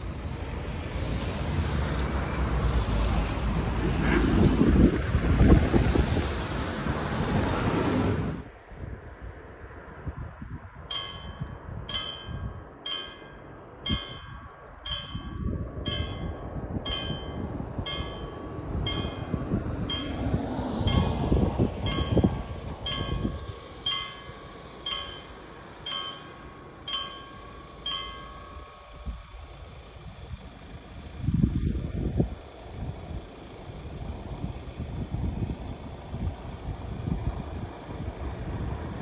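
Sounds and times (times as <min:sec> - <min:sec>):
low rumble: 0:10.2 - 0:37.6
level crossing warning bell: 0:10.9 - 0:31.2.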